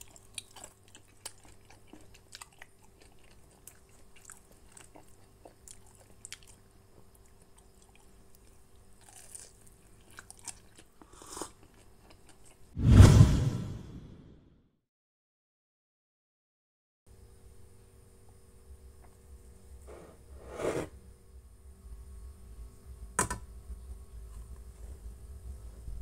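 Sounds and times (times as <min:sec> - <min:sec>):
crunchy chewing-like food noises: 0:00.0 - 0:12.8
loud low burst of noise: 0:12.8 - 0:14.3.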